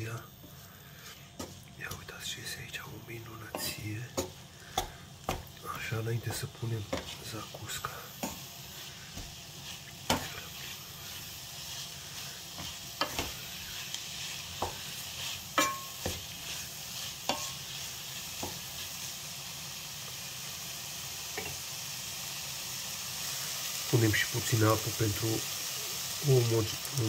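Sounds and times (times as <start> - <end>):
food sizzling in a pan: 0.0 - 27.0
wooden spatula scraping a pan: 0.4 - 19.0.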